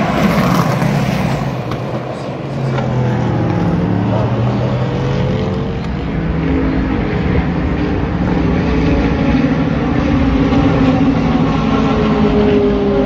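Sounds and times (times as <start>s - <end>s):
engine rumbling: 0.0s - 13.0s.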